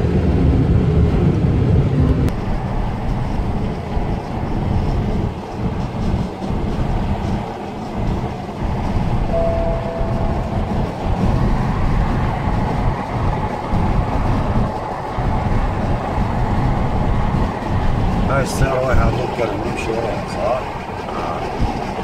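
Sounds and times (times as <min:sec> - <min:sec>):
car cabin road noise: 0:00.1 - 0:22.0
short faint tone: 0:09.3 - 0:10.9.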